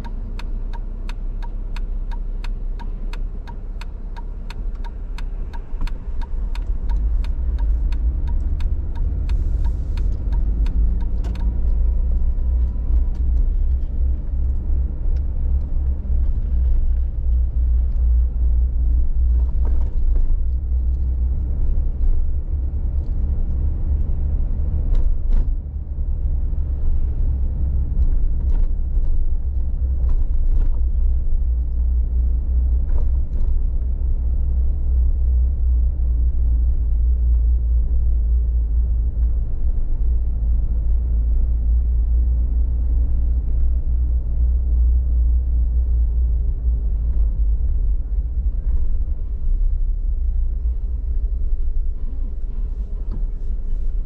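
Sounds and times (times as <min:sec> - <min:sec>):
turn signal ticking: 0:00.0 - 0:25.2
car engine and road rumble: 0:00.0 - 0:54.0.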